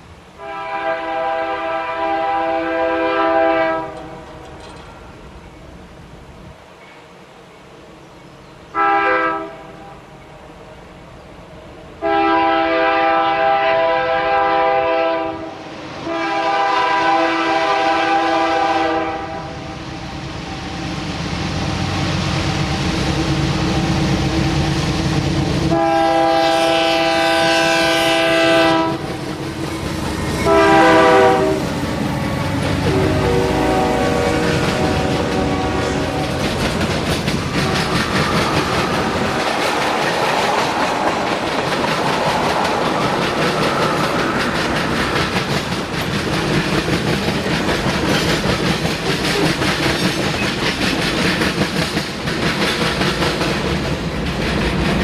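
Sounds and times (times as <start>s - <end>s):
train horn blasts: 0.4s - 4.3s, 8.7s - 9.9s, 12.0s - 19.8s, 25.7s - 29.2s, 30.4s - 31.7s, 32.6s - 36.4s, 37.6s - 38.1s
diesel locomotive rumble: 16.2s - 55.0s.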